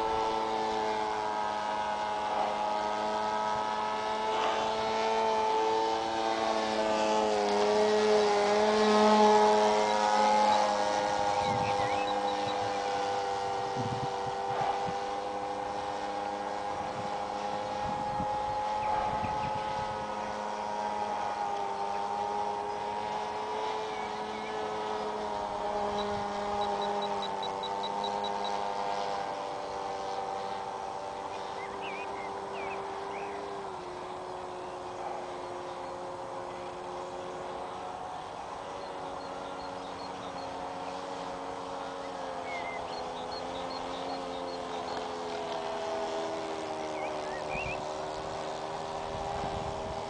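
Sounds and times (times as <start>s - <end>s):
model plane engine whine: 0.0s - 50.0s
wind buffeting microphone: 6.4s - 50.0s
small bird chirping: 9.8s - 12.9s, 46.9s - 47.9s.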